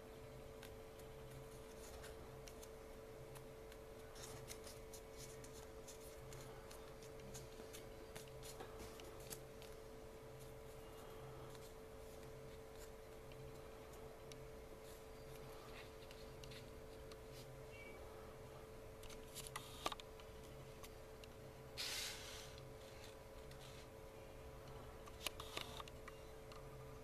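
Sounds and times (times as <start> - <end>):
steady hum: 0.0 - 27.0
paper crinkling by hand: 3.3 - 9.8.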